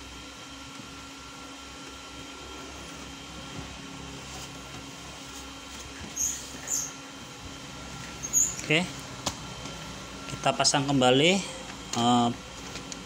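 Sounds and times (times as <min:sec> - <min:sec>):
steady background hum: 0:00.0 - 0:13.0
cloth rubbing plastic: 0:02.7 - 0:06.8
high squeak: 0:06.1 - 0:07.0, 0:08.2 - 0:08.6.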